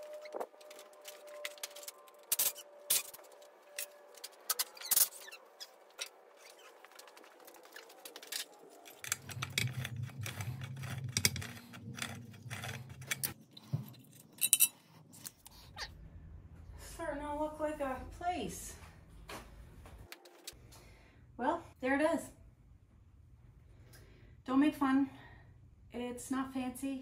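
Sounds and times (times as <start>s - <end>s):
low hum: 0.0s - 21.8s
metal tools clinking: 0.7s - 5.4s, 8.2s - 15.0s.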